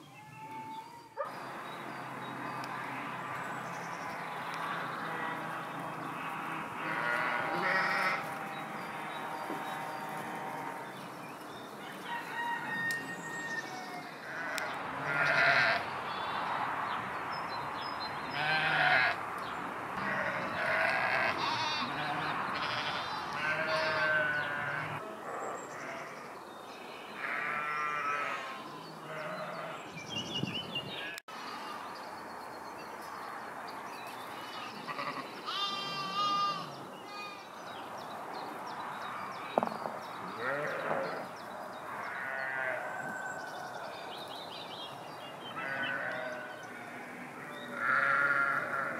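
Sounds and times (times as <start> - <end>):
sheep and lambs bleating: 2.6 - 11.1, 12.6 - 16.4, 18.3 - 19.2, 20.0 - 29.9, 31.0 - 31.9, 34.4 - 37.5, 40.2 - 41.3, 41.9 - 43.2, 45.5 - 48.9.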